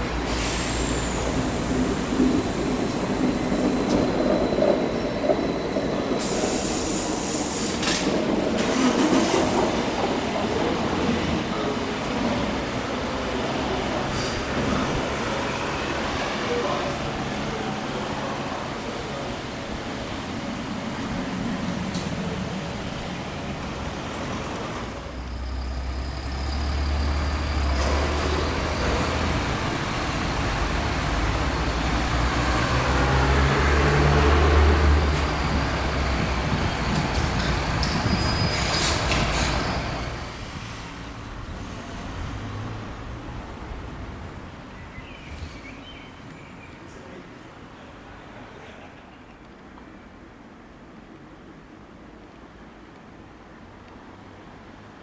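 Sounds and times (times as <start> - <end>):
electric train rolling in: 0.0 - 44.7
air brake hisses: 0.2 - 2.0, 6.2 - 8.0.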